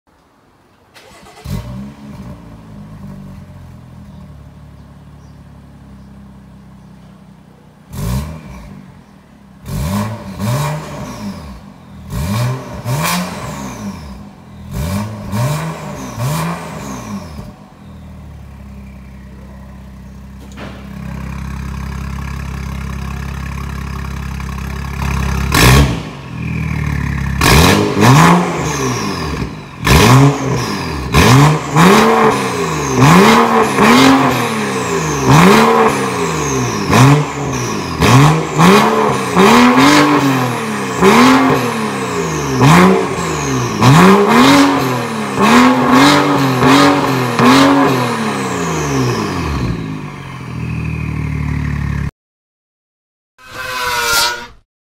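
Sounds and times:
car engine revving: 7.9 - 52.1
exhaust crack: 19.9 - 52.1.

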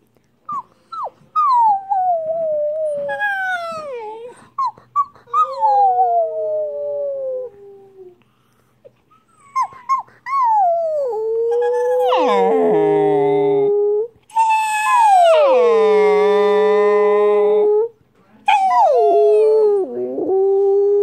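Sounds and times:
puppy howling: 1.4 - 8.2, 9.4 - 17.9, 18.5 - 21.0
puppy yelping: 9.2 - 10.6.

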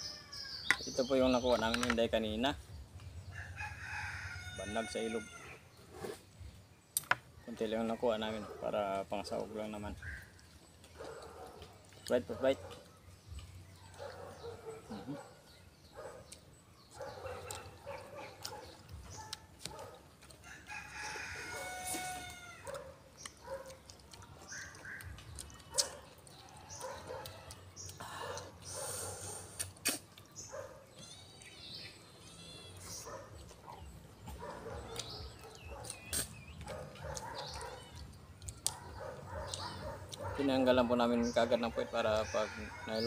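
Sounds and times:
people eating with hands: 0.2 - 43.0
rooster crowing: 3.4 - 5.6, 20.4 - 22.8.

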